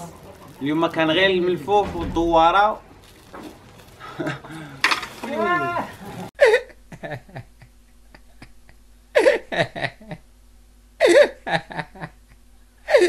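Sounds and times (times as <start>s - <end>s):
faint steady hum: 0.0s - 13.0s
man's high-pitched squeals: 5.2s - 6.0s.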